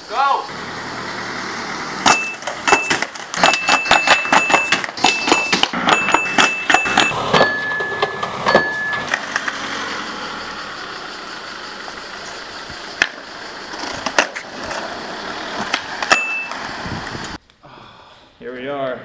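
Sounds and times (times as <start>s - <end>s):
car driving: 0.0s - 17.4s
short beeps: 2.1s - 9.2s, 16.1s - 16.6s
skateboard clacking on pavement: 2.1s - 9.5s, 13.0s - 16.7s.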